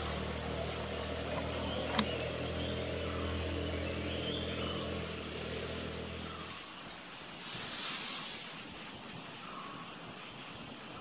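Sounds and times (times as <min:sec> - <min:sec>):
vehicle engine idling: 0:00.0 - 0:06.6
sharp click: 0:01.9 - 0:02.2.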